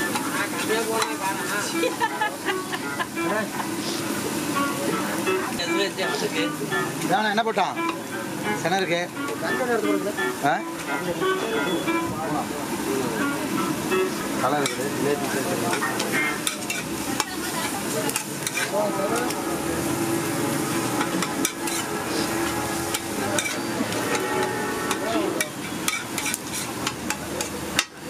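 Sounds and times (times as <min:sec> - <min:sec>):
food sizzling on a griddle: 0:00.0 - 0:28.0
spatula scraping a griddle: 0:15.7 - 0:28.0.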